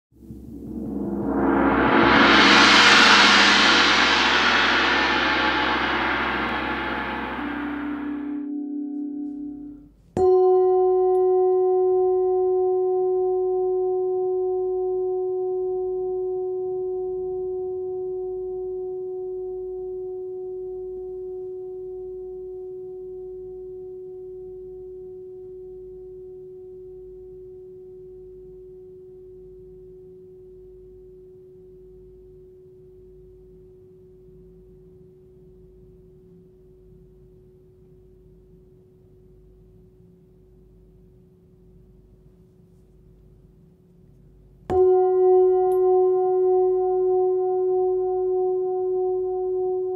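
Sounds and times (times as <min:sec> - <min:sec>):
singing bowl ringing: 0:00.4 - 0:30.3, 0:44.7 - 0:49.9.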